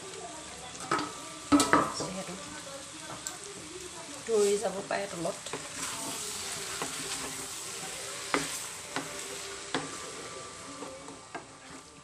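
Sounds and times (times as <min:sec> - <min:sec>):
vegetables sizzling in oil: 0:00.0 - 0:12.0
wooden spatula scraping a pan: 0:04.2 - 0:12.0.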